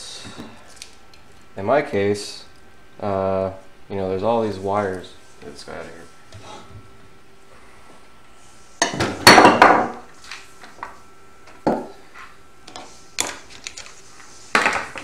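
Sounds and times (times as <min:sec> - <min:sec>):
knocks and clatter on workbench: 0:14.6 - 0:15.0.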